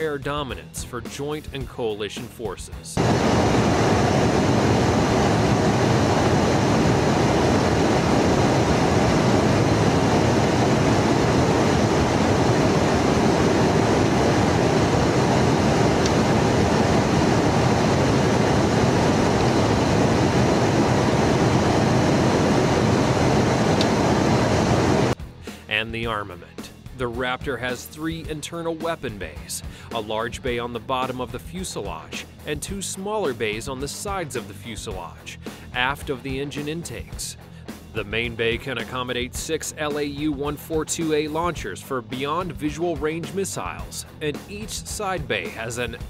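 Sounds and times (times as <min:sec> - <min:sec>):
jet aircraft roar in flight: 0:03.0 - 0:25.2.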